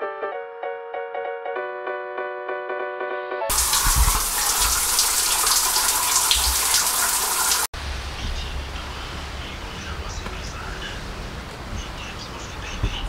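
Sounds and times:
piano music: 0.0 - 6.2
shower water spraying onto tiles: 3.5 - 9.5
outdoor background noise: 3.5 - 13.0.

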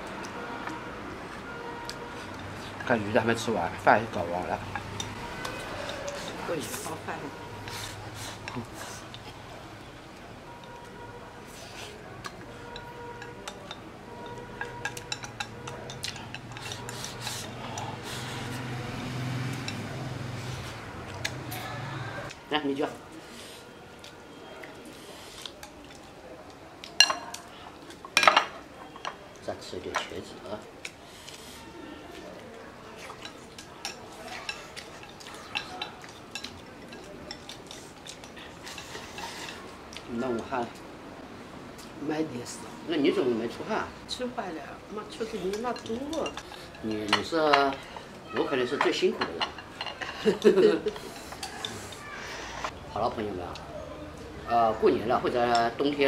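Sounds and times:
chopsticks clinking on bowls: 4.1 - 7.0, 11.8 - 18.7, 19.5 - 20.5, 26.8 - 31.0, 32.9 - 40.5, 45.0 - 52.1
chopsticks clicking on ceramic bowl: 12.2 - 17.9.

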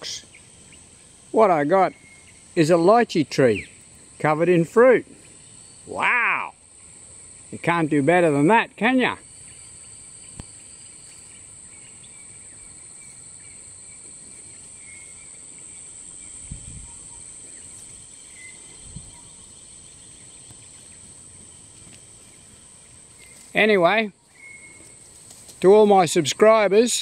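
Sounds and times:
faint chirps: 0.0 - 4.4, 9.1 - 25.4
high-pitched insect drone: 0.0 - 27.0.

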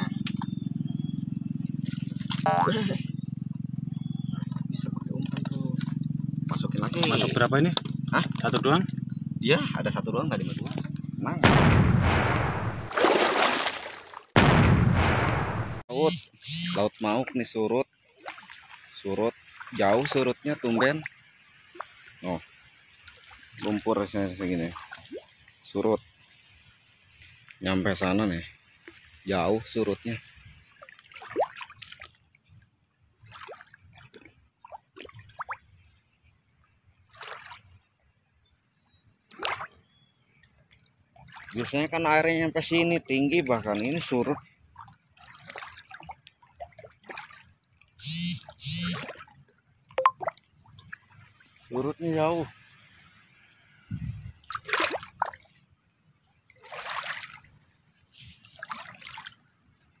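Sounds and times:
wet splashes in muddy water: 1.7 - 3.0, 12.4 - 14.4, 16.5 - 26.4, 28.6 - 38.1, 39.2 - 42.4, 43.2 - 53.5, 54.3 - 60.0
dripping water plinks: 48.9 - 51.7.

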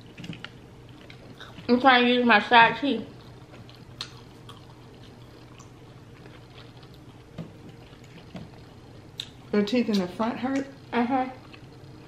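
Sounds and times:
chewing food with wet mouth clicks: 3.1 - 9.5, 11.4 - 11.9.

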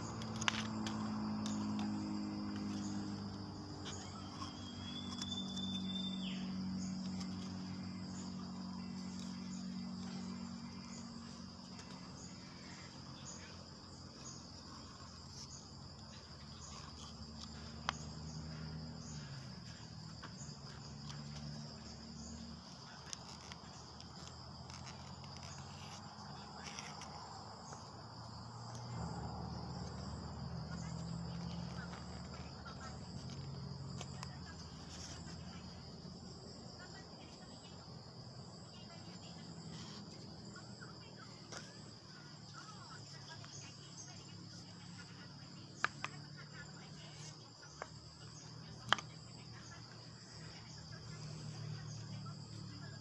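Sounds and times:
insects chirping: 0.0 - 53.0.

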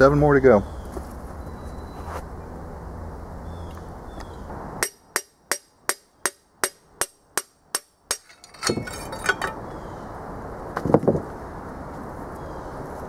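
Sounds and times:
metallic clatter: 8.2 - 9.6.

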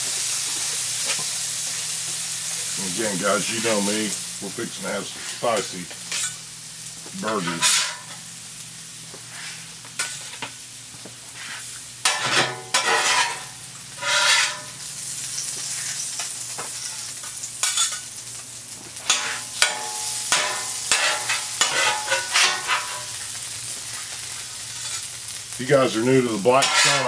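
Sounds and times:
food sizzling on griddle: 0.0 - 27.0
metal spatula scraping: 5.2 - 6.4, 7.2 - 8.2, 11.4 - 14.8, 19.1 - 23.1, 26.4 - 27.0.

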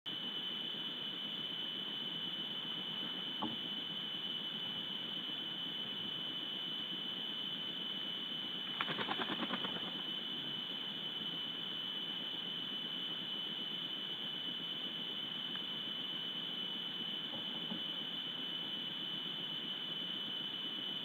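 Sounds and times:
high-pitched electronic whine: 0.1 - 21.0
quick rattle of ticks: 8.7 - 10.0.

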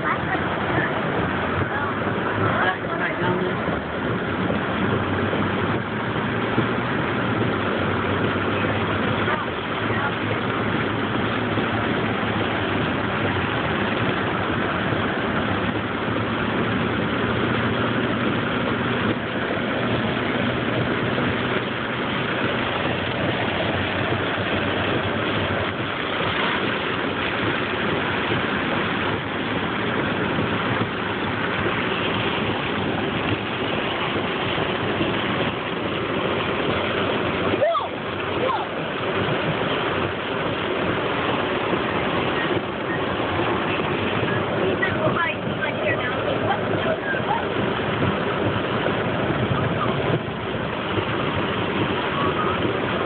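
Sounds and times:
car engine running: 0.0 - 53.0
rain on a car: 0.0 - 53.0
tyres on wet road: 0.0 - 53.0.

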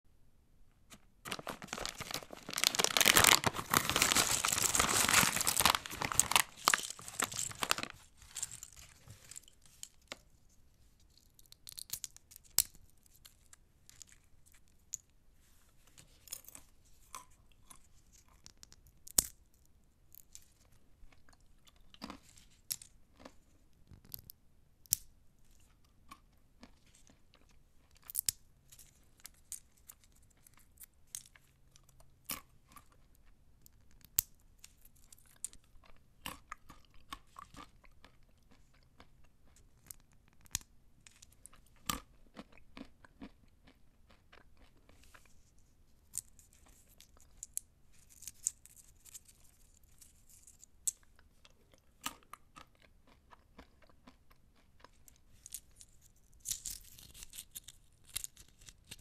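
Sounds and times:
crunching: 0.9 - 10.0
shells rustling: 1.2 - 10.0
pistachio shells cracking: 11.3 - 12.9.

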